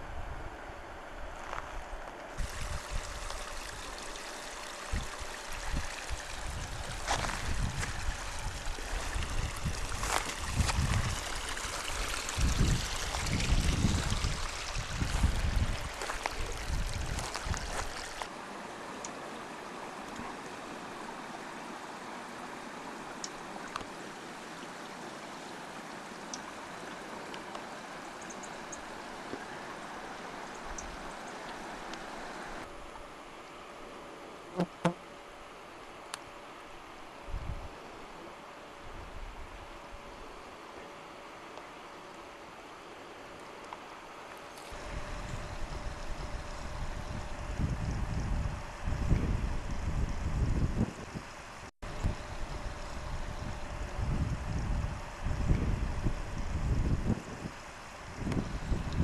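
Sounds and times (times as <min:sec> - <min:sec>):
wind rumbling on microphone: 0:00.0 - 0:18.3, 0:37.2 - 0:37.8, 0:44.7 - 0:59.0
creek trickling over rocks: 0:02.3 - 0:32.7
steady hiss: 0:02.3 - 0:34.9.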